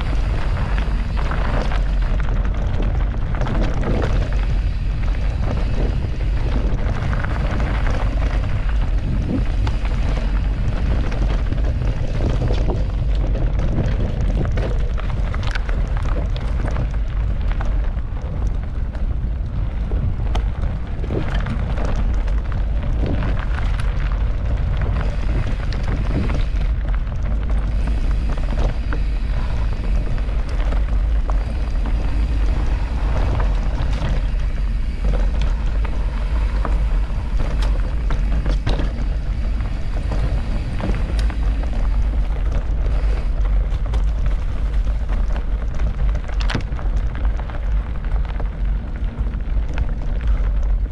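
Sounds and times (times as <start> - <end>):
bike rattling over ground: 0.0 - 50.9
wind buffeting microphone: 0.0 - 50.9.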